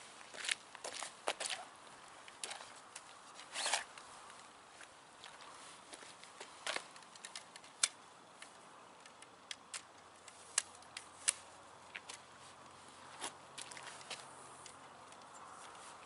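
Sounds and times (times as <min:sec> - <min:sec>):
camera and tripod clicks: 0:03.4 - 0:04.0.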